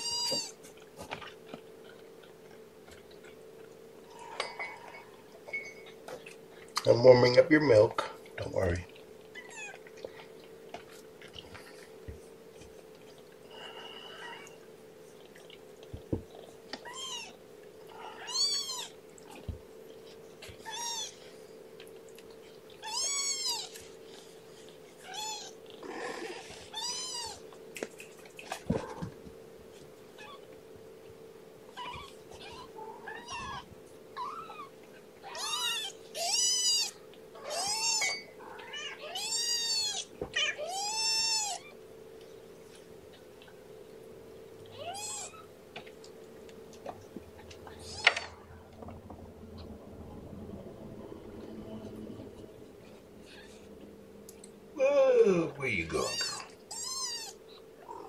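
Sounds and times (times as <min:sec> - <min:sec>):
steady low hum: 0:00.0 - 0:58.0
kitten mewing: 0:22.8 - 0:23.8, 0:34.2 - 0:41.7, 0:44.7 - 0:45.5, 0:55.5 - 0:58.0.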